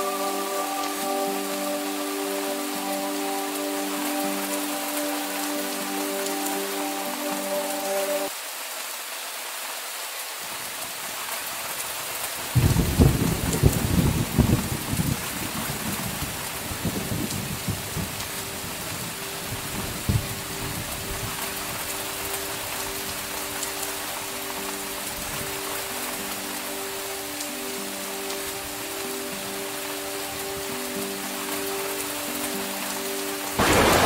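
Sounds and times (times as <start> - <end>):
steady rain falling: 0.0 - 34.0
thunder clap and rumble: 33.6 - 34.0.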